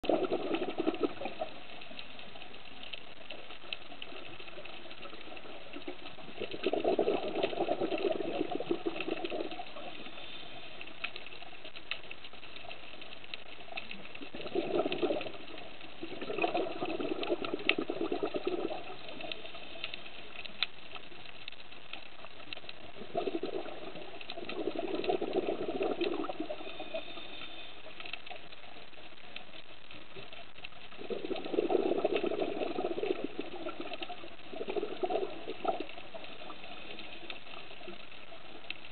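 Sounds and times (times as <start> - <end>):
bubbling exhalation underwater: 0.0 - 1.5, 5.0 - 10.0, 14.2 - 19.2, 23.0 - 27.0, 31.0 - 36.6
faint crackle of clicks: 0.0 - 38.9.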